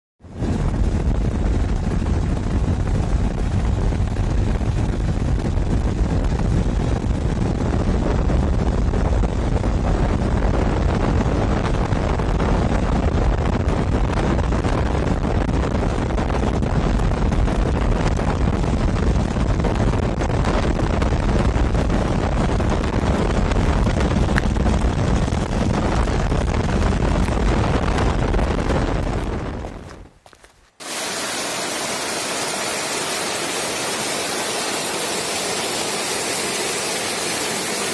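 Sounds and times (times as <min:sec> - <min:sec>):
wind rushing over microphone: 0:00.2 - 0:37.9
motorcycle engine running: 0:21.7 - 0:30.4.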